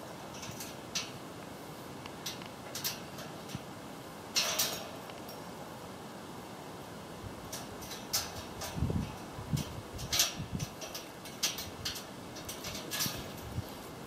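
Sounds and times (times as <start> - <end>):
claws rattling on wire mesh: 4.4 - 5.0, 7.5 - 13.7.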